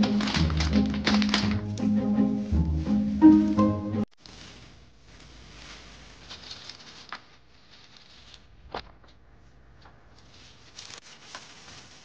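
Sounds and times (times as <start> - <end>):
plastic bag rustling: 0.0 - 8.6, 10.2 - 12.0.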